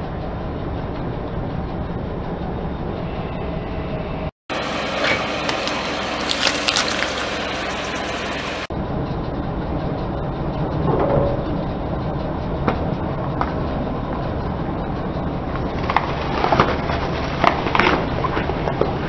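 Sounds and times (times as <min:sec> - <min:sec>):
car engine and tyre rumble: 0:04.5 - 0:19.0.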